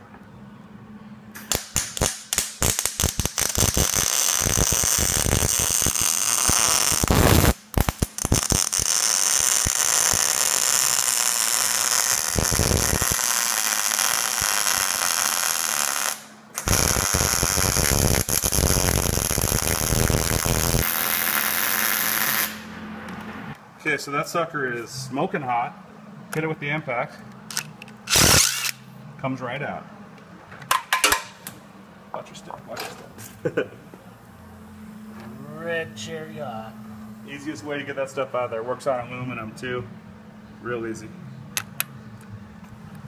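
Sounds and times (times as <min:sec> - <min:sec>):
welder arc crackling: 0:01.4 - 0:22.7, 0:28.1 - 0:28.8.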